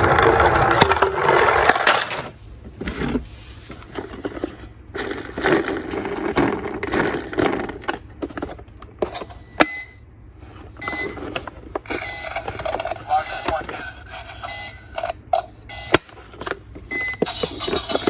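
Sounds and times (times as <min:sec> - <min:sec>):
plastic toy rubbing and knocking: 0:03.9 - 0:08.5, 0:17.2 - 0:18.0.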